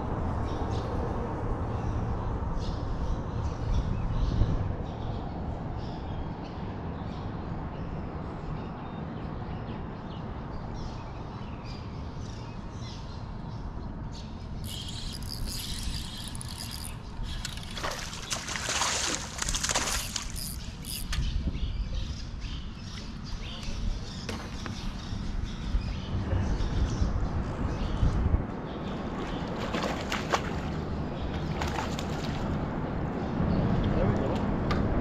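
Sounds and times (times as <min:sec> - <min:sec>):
water lapping against hull: 0:14.7 - 0:21.1.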